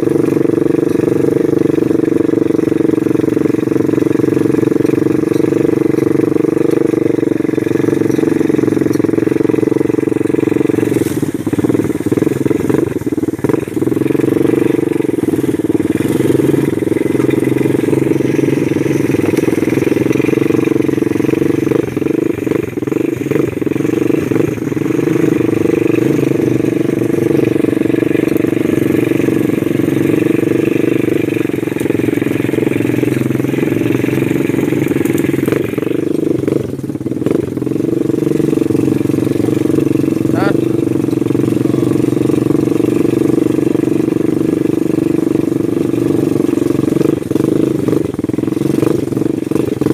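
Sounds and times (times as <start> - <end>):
atv engine running: 0.0 - 49.9.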